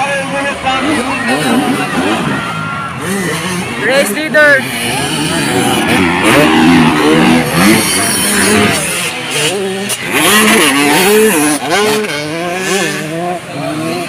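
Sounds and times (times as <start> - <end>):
dirt bike engines revving: 0.0 - 14.0.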